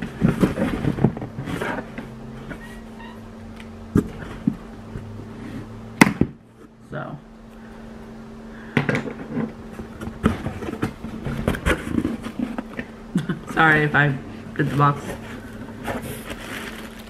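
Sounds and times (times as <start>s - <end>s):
cardboard flaps and packing rustling: 0.0s - 3.0s, 9.2s - 12.9s, 14.5s - 17.0s.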